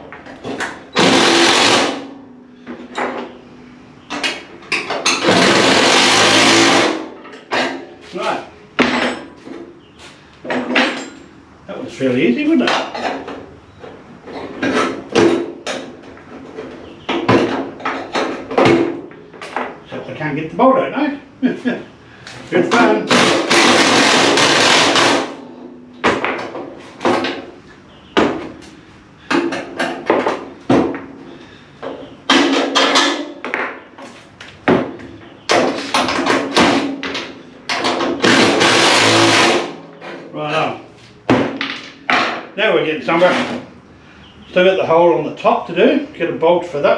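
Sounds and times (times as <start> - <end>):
metal clanks and scrapes: 14.2 - 19.7.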